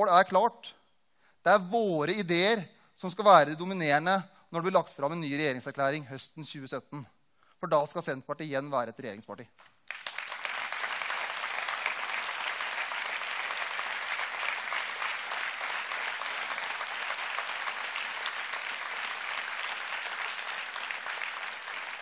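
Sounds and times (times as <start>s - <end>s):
audience applauding: 9.6s - 22.0s.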